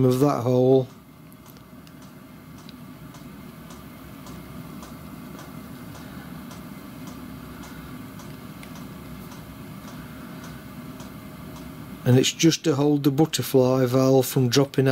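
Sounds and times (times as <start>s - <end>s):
low hum: 0.0s - 14.8s
faint evenly spaced ticks: 0.9s - 11.8s.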